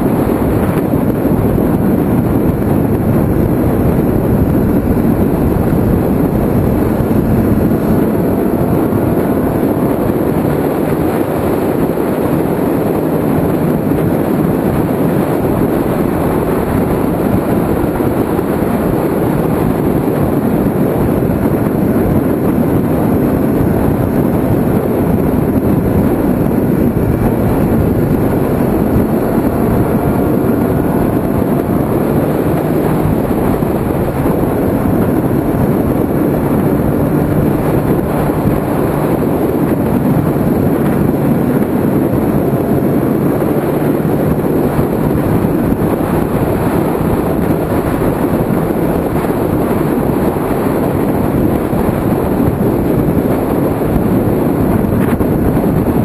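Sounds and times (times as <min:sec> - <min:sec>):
heavy wind noise: 0:00.0 - 0:56.0
motorcycle engine running at speed: 0:00.0 - 0:56.0.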